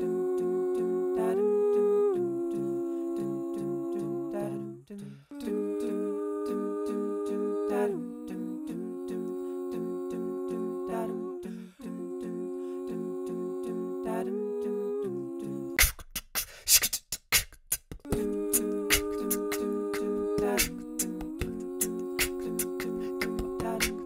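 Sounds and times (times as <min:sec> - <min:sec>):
woman singing bass line: 0:00.0 - 0:15.8, 0:18.0 - 0:24.0
hummed vocal chords: 0:00.0 - 0:15.9, 0:18.0 - 0:24.0
beatboxed percussion: 0:15.8 - 0:24.0.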